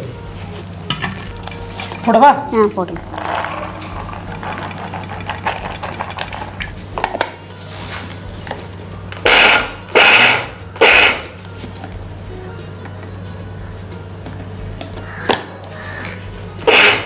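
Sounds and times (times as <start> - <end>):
mixer grinder motor pulses: 9.2 - 11.3, 16.6 - 17.0.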